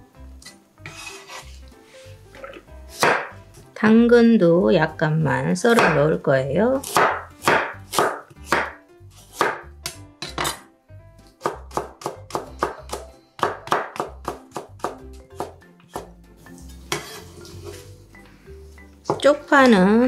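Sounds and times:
soft background music: 0.0 - 20.0
knife cutting on wooden board: 0.8 - 1.7, 16.7 - 17.9
blade scraping across board: 0.8 - 2.0, 16.6 - 17.9.

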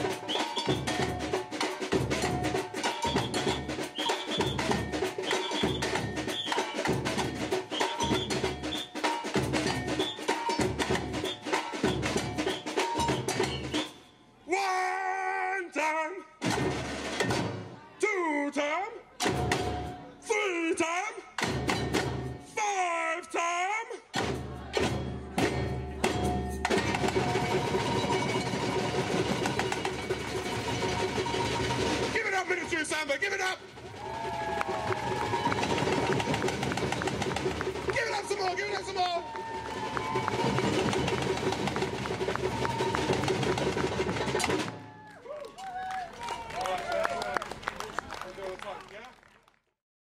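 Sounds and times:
bell-like tones: 0.0 - 9.0
samba drum band playing: 0.0 - 14.0, 16.4 - 17.8, 19.2 - 20.1, 21.4 - 22.5, 24.1 - 45.0
stick and shaker rhythms: 0.0 - 14.0, 24.1 - 44.8.

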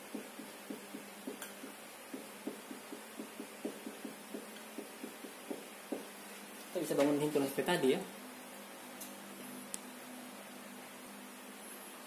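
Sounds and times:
marker tapping on whiteboard: 0.0 - 6.1
faint room hiss: 0.0 - 12.0.

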